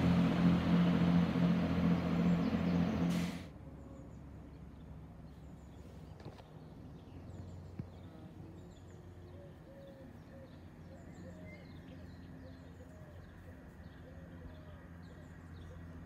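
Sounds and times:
distant diesel train drone: 0.0s - 4.2s
small birds chirping: 1.7s - 3.2s, 3.9s - 16.0s.

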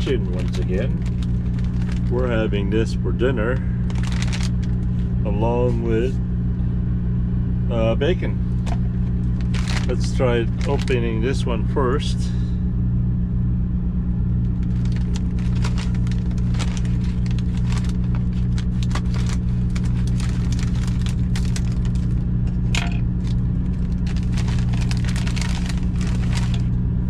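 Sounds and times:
plastic packaging crinkling: 0.0s - 2.5s, 3.8s - 5.2s, 8.5s - 11.1s, 14.4s - 26.8s
low hum in truck cab: 0.0s - 27.0s.

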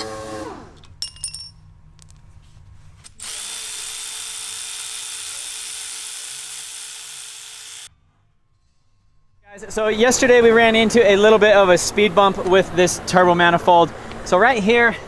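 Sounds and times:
power ratchet running: 3.2s - 7.9s.

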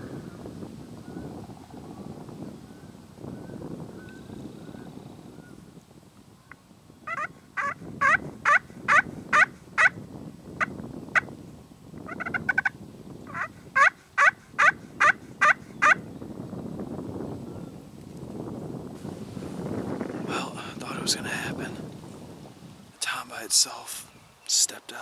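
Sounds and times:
wild turkey yelping: 7.1s - 9.9s, 12.1s - 12.7s, 13.3s - 16.0s.

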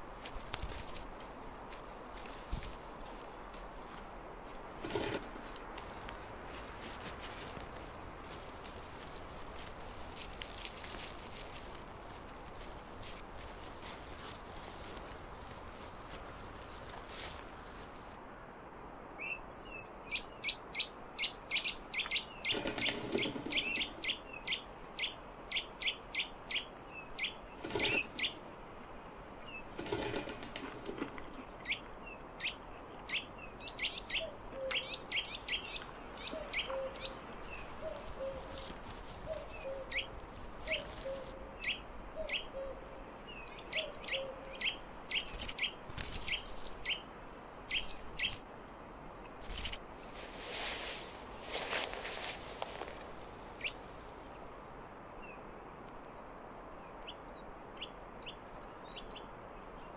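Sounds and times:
rustling: 0.0s - 18.2s, 22.5s - 24.0s, 27.6s - 28.5s, 29.6s - 31.6s, 37.4s - 41.4s, 45.2s - 46.8s, 49.4s - 54.4s
songbirds chirping: 0.0s - 48.5s, 49.2s - 59.9s.

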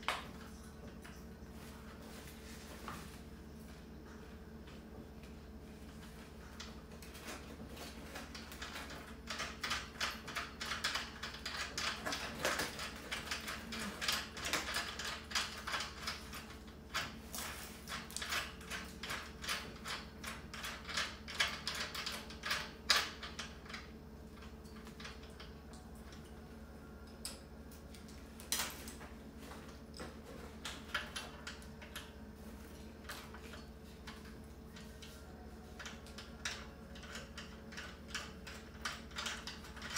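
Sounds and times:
metal parts clicking and rattling: 6.6s - 26.2s, 30.6s - 32.1s, 33.0s - 39.9s.

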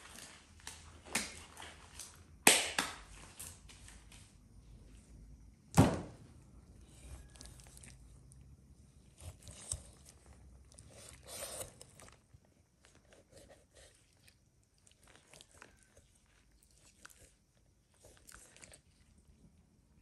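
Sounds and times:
thunk on wooden cutting board: 5.8s - 6.2s
knife slicing and scraping chicken: 9.1s - 10.2s, 10.9s - 12.1s.

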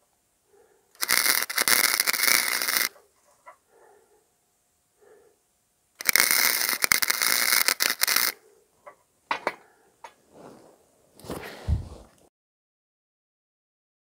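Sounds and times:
welder arc crackling: 1.0s - 3.0s, 6.0s - 8.4s.

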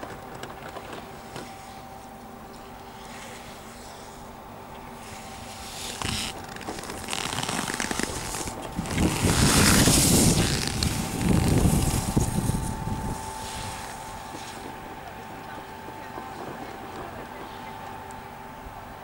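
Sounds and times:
skis scraping on hard snow: 5.0s - 12.8s.

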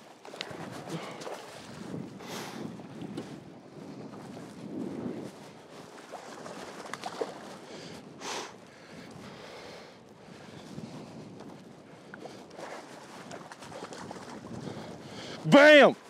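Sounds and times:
water slapping around a boat: 0.0s - 16.0s
wind buffeting microphone: 0.0s - 16.0s
fish thrashing and splashing: 6.0s - 7.6s, 12.8s - 14.5s.

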